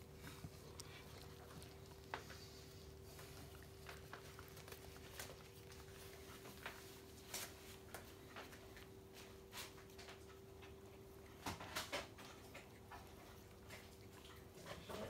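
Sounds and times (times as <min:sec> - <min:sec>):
dog licking puppy: 0:00.0 - 0:11.4, 0:12.1 - 0:15.0
faint steady hum: 0:00.0 - 0:15.0.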